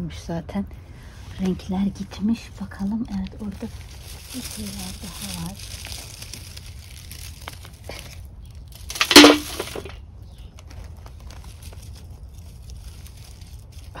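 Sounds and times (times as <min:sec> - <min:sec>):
leaves and stones rustling: 0:02.9 - 0:14.0
loud crunching crack: 0:04.3 - 0:10.0.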